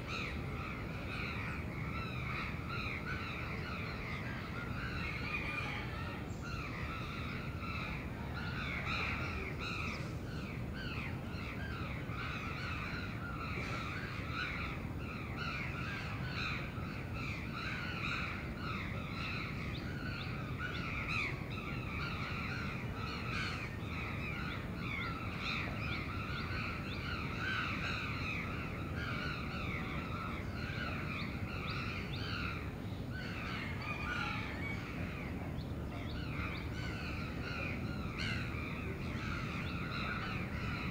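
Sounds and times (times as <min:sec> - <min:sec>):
low city rumble: 0:00.0 - 0:40.9.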